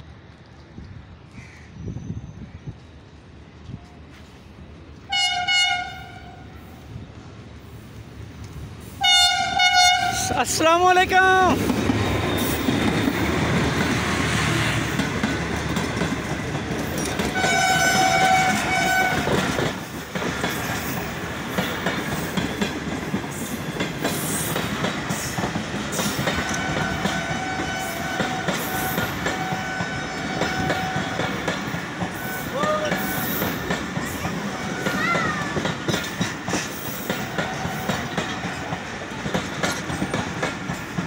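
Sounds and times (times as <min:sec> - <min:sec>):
rumble of wheels on rail: 0:00.0 - 0:41.0
diesel locomotive running: 0:02.0 - 0:41.0
train horn: 0:05.1 - 0:06.6, 0:09.0 - 0:10.3, 0:17.3 - 0:19.4, 0:26.3 - 0:31.4.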